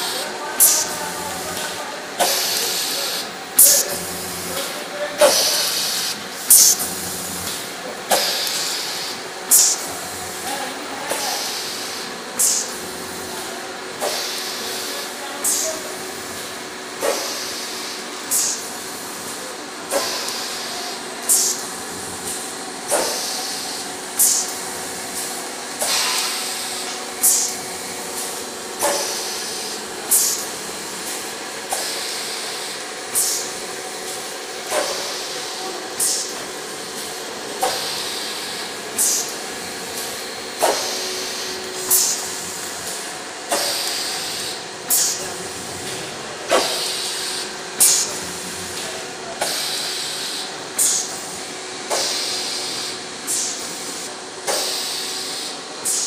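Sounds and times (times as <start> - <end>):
machine humming: 0.0 - 54.0
air hiss: 5.2 - 7.2, 11.2 - 12.8, 19.9 - 21.7, 22.9 - 24.6, 34.8 - 36.4, 37.6 - 39.4, 40.0 - 42.6, 49.5 - 53.8.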